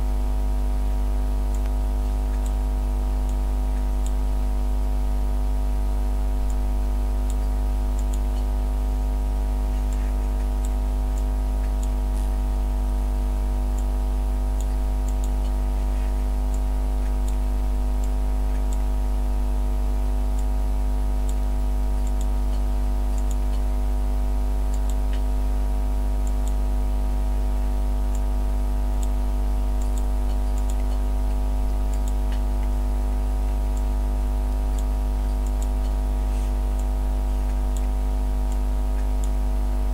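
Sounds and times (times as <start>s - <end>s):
steady low hum: 0.0s - 39.9s
faint high ticks: 1.5s - 2.6s, 7.2s - 8.6s, 9.8s - 12.4s, 21.3s - 23.8s, 29.8s - 32.8s.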